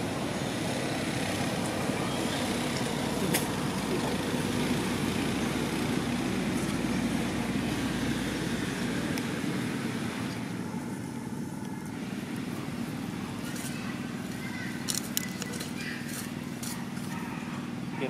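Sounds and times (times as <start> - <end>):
traffic rumble: 0.0 - 18.0.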